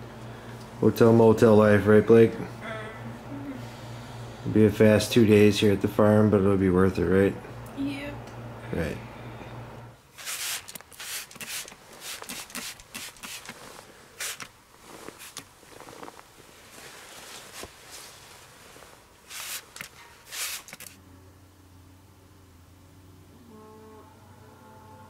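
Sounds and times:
rustling and scuffing: 10.2s - 20.9s.

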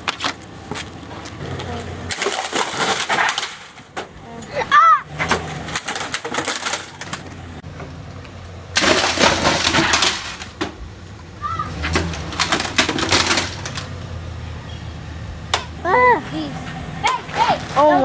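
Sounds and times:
pickup truck engine running: 0.0s - 18.0s
computer case cracking and crunching: 2.1s - 3.8s, 5.2s - 7.3s, 8.8s - 10.8s, 11.9s - 14.0s.

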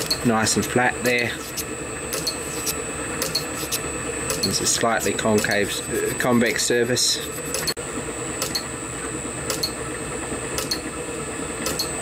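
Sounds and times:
small machine motor humming: 0.0s - 12.0s.

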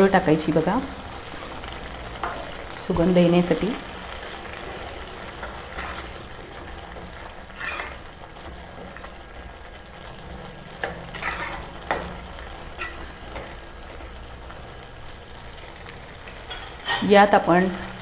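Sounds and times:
food sizzling and bubbling: 0.0s - 18.0s
metal spatula scraping pan: 4.8s - 6.4s, 7.4s - 8.2s, 10.8s - 13.5s, 16.5s - 17.2s.

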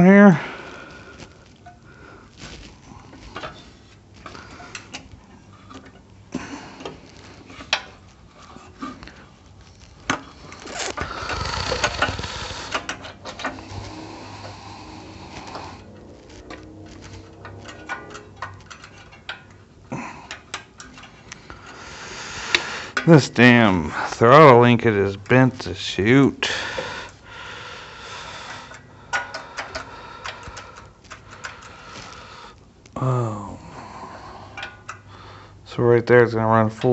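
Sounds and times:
metal parts clicking and knocking: 9.8s - 21.9s, 28.5s - 32.1s.

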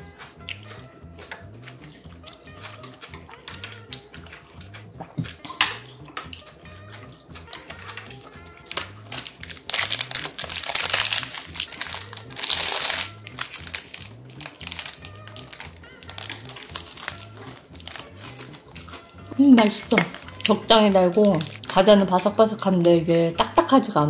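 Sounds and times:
background music with steady beat: 0.0s - 24.0s
plastic wrapper crinkling: 7.8s - 19.0s, 19.6s - 23.6s.

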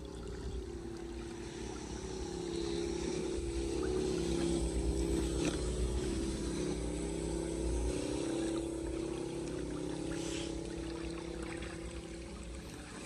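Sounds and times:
steady low hum: 0.0s - 13.0s
floodwater rushing down drain: 8.0s - 13.0s.

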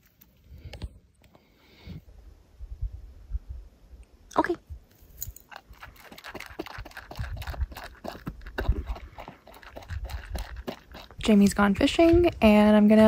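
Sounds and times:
dog crunching dry kibble: 5.2s - 12.4s.

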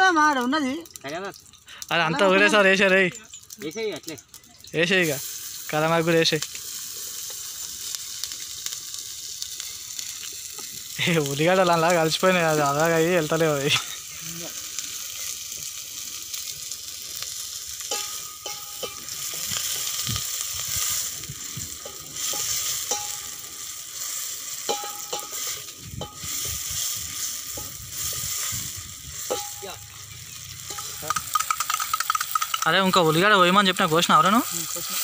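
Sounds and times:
vegetables sizzling in hot oil: 0.0s - 35.0s
steel spoon scraping pot: 21.8s - 23.5s, 24.6s - 32.6s.

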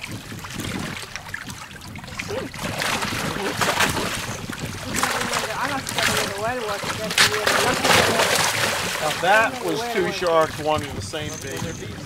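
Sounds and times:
sharks splashing at surface: 2.2s - 10.7s.

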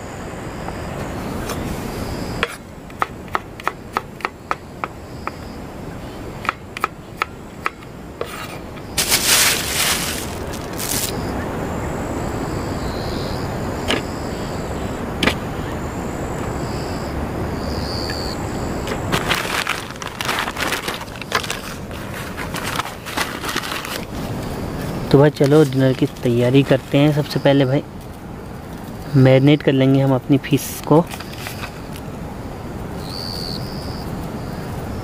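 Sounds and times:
plastic bag rustling: 8.4s - 11.3s, 18.9s - 27.0s.

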